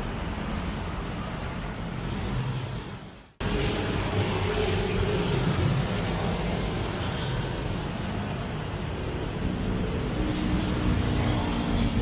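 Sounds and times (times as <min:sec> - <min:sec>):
motorcycles and cars passing: 0:00.0 - 0:12.0.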